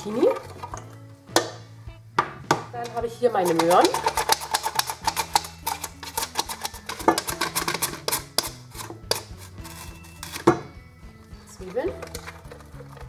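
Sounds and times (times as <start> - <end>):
carrots sliced on mandoline: 3.4 - 10.6.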